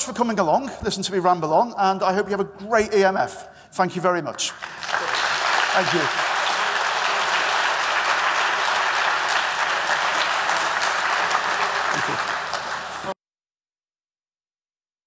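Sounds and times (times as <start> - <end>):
audience applauding: 4.4 - 13.2.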